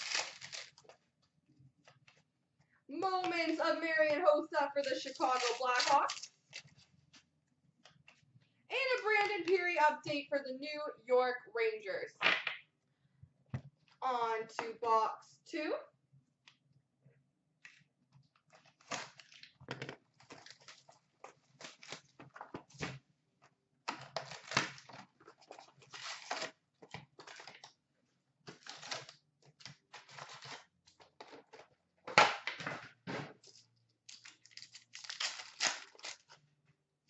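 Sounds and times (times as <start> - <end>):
cardboard and wrapping rustling: 0.0 - 1.1, 4.8 - 7.3, 18.4 - 23.0, 23.9 - 27.8, 28.5 - 31.8.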